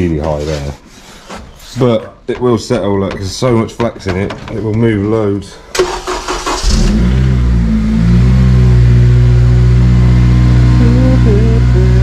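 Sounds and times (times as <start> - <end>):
car engine starting and idling: 5.7 - 12.0.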